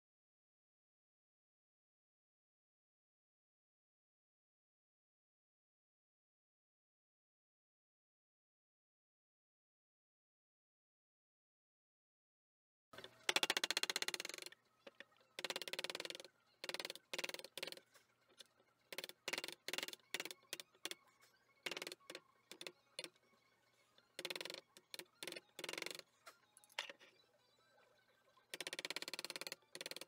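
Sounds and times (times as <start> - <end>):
wooden mallet tapping chisel: 13.0 - 17.9, 18.9 - 21.0, 21.7 - 23.1, 24.2 - 26.0, 28.6 - 30.0.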